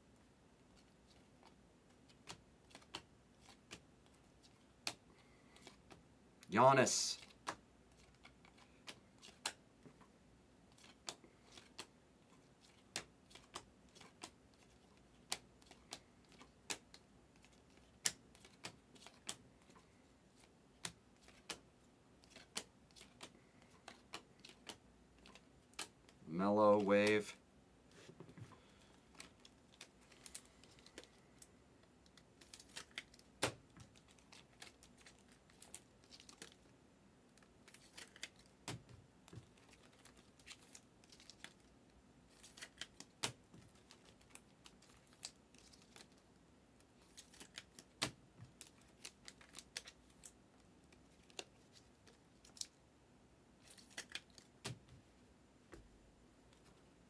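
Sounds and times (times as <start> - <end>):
cards clicking and tapping: 1.4 - 4.2, 7.2 - 10.1, 10.8 - 12.0, 12.6 - 19.8, 20.4 - 21.6, 22.2 - 26.2, 53.7 - 54.9.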